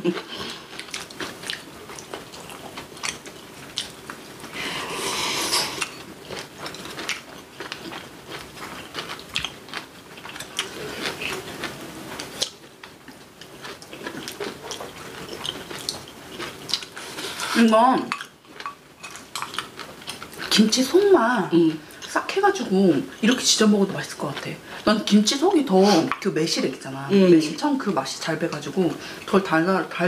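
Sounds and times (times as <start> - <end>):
chewing and biting food: 0.0 - 4.2, 5.8 - 17.0.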